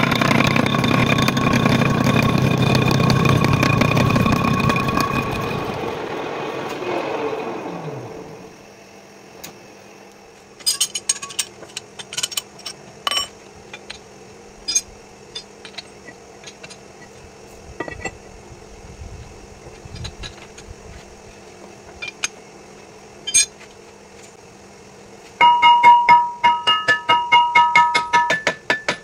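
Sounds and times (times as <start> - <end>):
metal lathe running and winding down: 0.0 - 8.6
metal clinks and knocks: 10.6 - 14.0, 21.9 - 22.4, 23.3 - 23.6.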